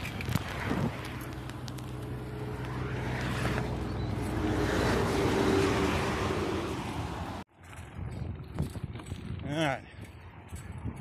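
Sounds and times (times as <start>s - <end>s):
vehicle passing on highway: 0.0s - 8.4s.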